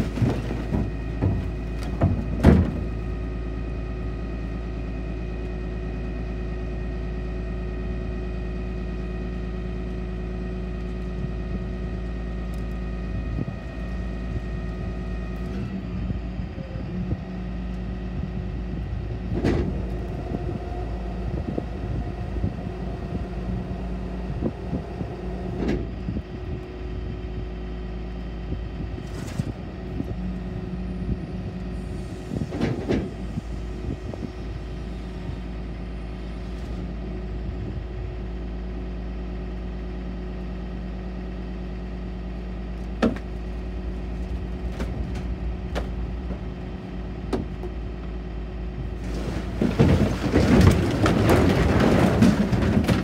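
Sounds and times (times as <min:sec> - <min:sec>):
junk knocking and cracking: 0:00.0 - 0:03.2, 0:42.9 - 0:43.5, 0:49.0 - 0:53.0
diesel engine running: 0:00.0 - 0:53.0.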